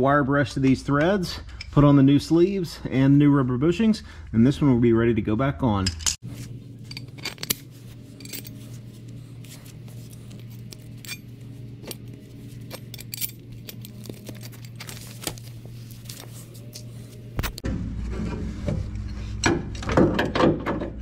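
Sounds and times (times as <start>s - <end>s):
low hum: 5.8s - 19.9s
small metal parts clinking: 6.8s - 16.9s.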